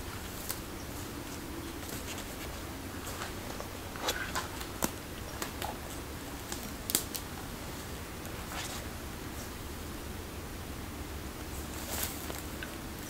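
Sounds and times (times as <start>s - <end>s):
twigs snapping underfoot: 0.2s - 0.7s, 1.3s - 7.4s.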